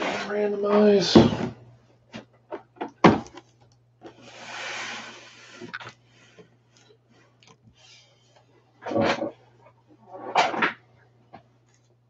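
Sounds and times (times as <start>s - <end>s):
boxes sliding on a desk: 4.1s - 5.7s.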